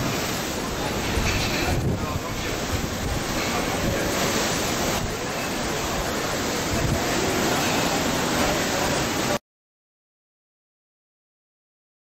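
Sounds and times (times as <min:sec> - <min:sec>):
wind buffeting microphone: 0:00.0 - 0:07.5
sea water rushing past ship: 0:00.0 - 0:09.4.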